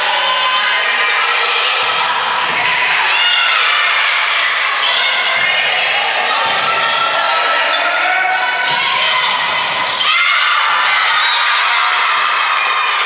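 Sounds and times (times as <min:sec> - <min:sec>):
crowd chatter: 0:00.0 - 0:13.0
volleyball being hit and bounced: 0:01.8 - 0:02.9.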